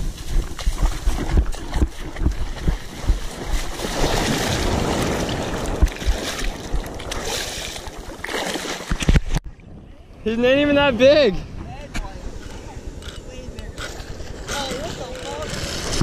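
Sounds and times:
wind buffeting microphone: 0:00.0 - 0:08.2, 0:08.9 - 0:16.0
surf washing in shallows: 0:00.0 - 0:09.0
water splashing around hands: 0:00.5 - 0:09.4.

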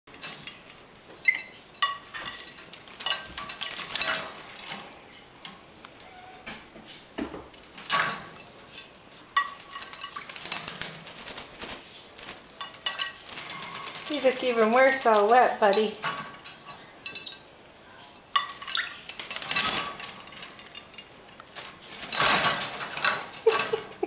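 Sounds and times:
wing fluttering: 0:09.5 - 0:15.6
clinks against glass: 0:15.7 - 0:17.5.

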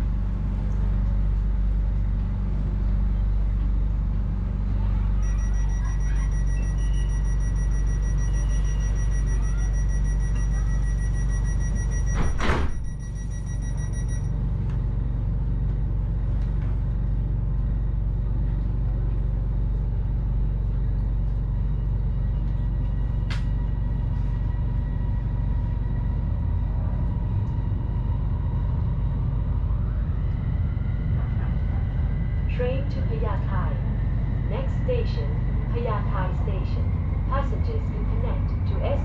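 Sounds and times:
train low hum: 0:00.0 - 0:39.0
rapid door warning beep: 0:05.2 - 0:14.3
train doors closing: 0:07.9 - 0:13.9.

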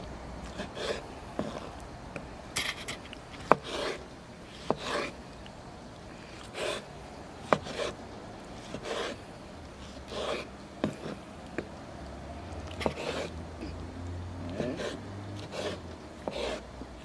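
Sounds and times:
utensils scraping: 0:02.6 - 0:05.2, 0:12.7 - 0:13.4, 0:14.5 - 0:16.6.

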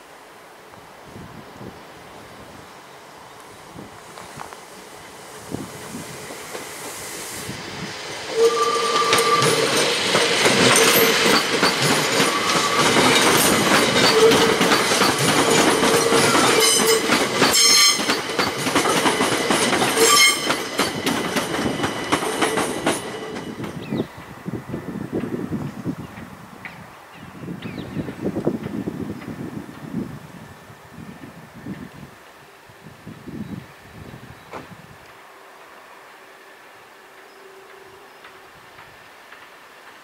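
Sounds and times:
electric train passing: 0:00.4 - 0:40.0
wheels clicking over rail joints: 0:08.4 - 0:24.0.

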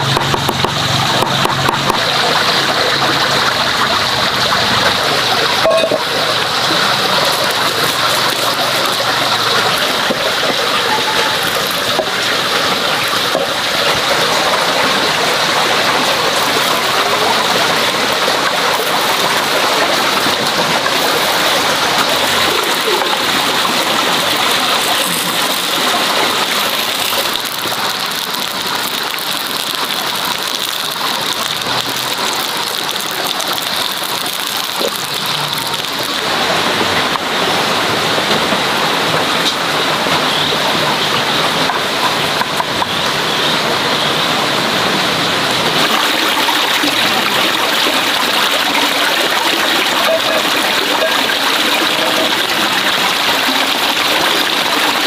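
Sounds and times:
sausages sizzling in a frying pan: 0:05.6 - 0:15.2, 0:16.3 - 0:36.3.

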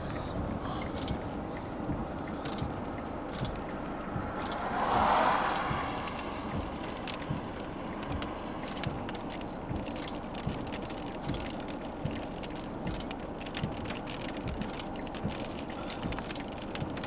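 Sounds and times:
road and wind noise in car: 0:00.0 - 0:17.0
taps on windshield: 0:01.0 - 0:17.0
vehicle passing whoosh: 0:03.3 - 0:09.7.

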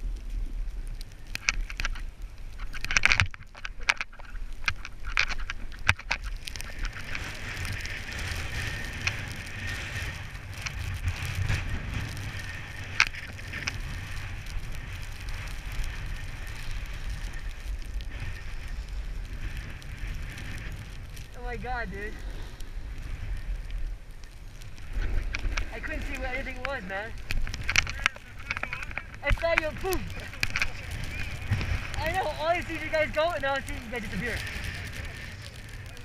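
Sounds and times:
wind rumbling on microphone: 0:00.0 - 0:36.0
skis hissing on snow: 0:06.3 - 0:36.0.

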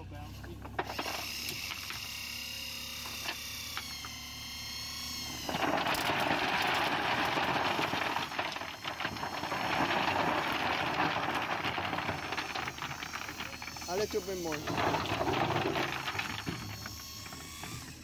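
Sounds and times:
rocks clattering onto plastic crates: 0:00.6 - 0:02.0, 0:05.4 - 0:18.0
loader machine running: 0:05.1 - 0:18.0.

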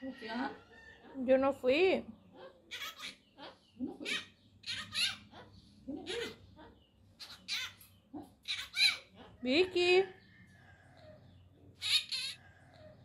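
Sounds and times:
parakeet raspy cough-like calls: 0:02.3 - 0:07.8, 0:08.4 - 0:09.4, 0:11.8 - 0:12.4.

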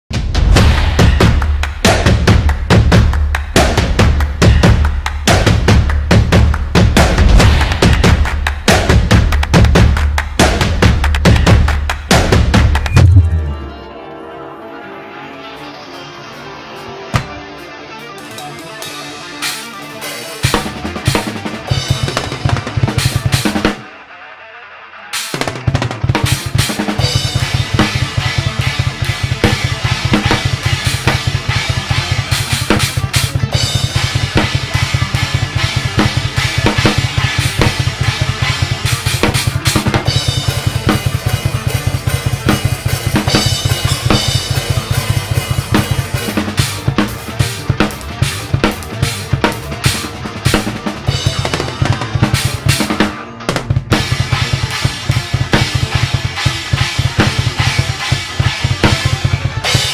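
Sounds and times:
rapid bass drum strokes: 0:00.1 - 0:13.5, 0:20.4 - 0:23.8, 0:25.3 - 0:59.9
snare drum hits: 0:00.2 - 0:13.3.

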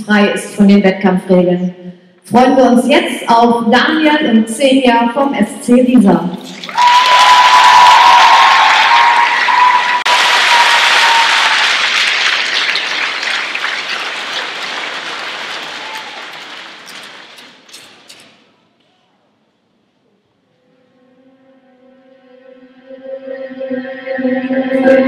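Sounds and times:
audience applauding: 0:06.4 - 0:18.2.

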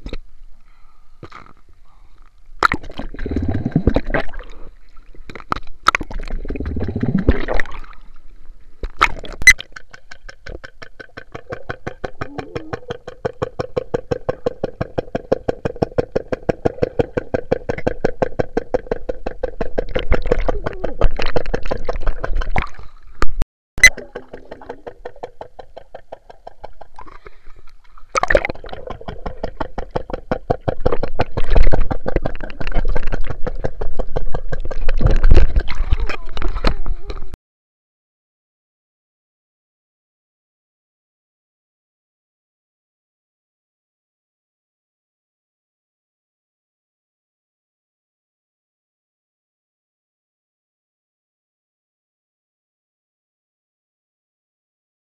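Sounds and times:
rapid underwater clicking: 0:02.6 - 0:04.6, 0:05.3 - 0:08.0, 0:08.8 - 0:37.4
water splashing: 0:02.6 - 0:13.2, 0:19.6 - 0:37.3.

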